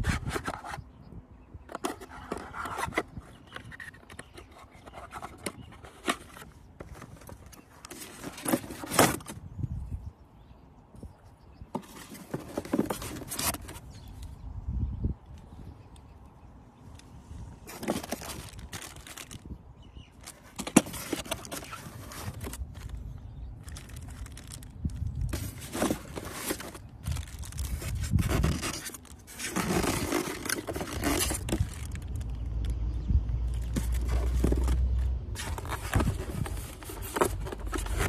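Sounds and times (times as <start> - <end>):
plastic packaging rustling: 11.8 - 13.9, 17.6 - 32.4, 33.5 - 38.0
scraping against foam: 25.2 - 31.9.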